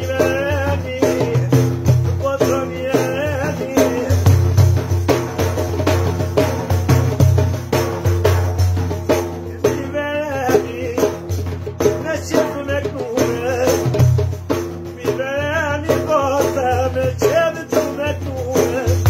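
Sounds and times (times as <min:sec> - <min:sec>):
man singing ornamented melody: 0:00.0 - 0:04.9, 0:09.1 - 0:19.0
frame drum with jingles: 0:00.0 - 0:19.0.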